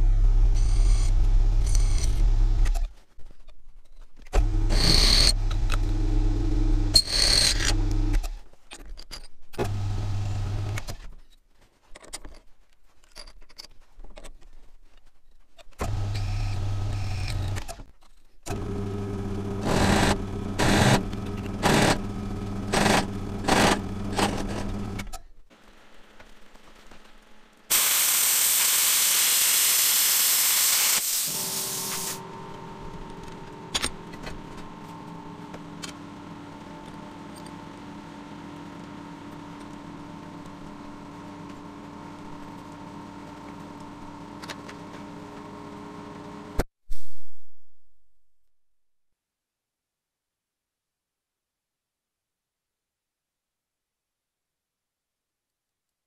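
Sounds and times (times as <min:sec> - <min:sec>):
pillar drill motor: 0:04.4 - 0:08.4, 0:15.8 - 0:17.8, 0:18.5 - 0:25.1
plasma cutter hissing: 0:27.7 - 0:32.2.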